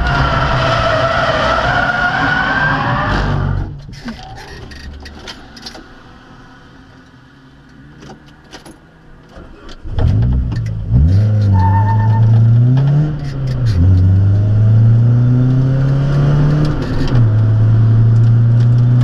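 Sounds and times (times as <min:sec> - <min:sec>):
car engine revving: 0:09.5 - 0:19.0.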